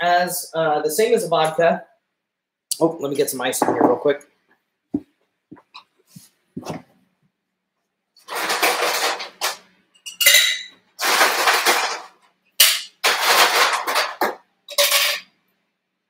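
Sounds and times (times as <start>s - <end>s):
ice cubes clattering into shaker: 8.3s - 9.6s, 11.0s - 12.1s, 13.0s - 15.2s.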